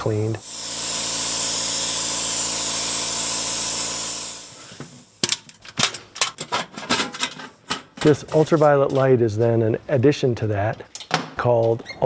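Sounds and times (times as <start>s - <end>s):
disinfectant spray hissing: 0.0s - 5.2s.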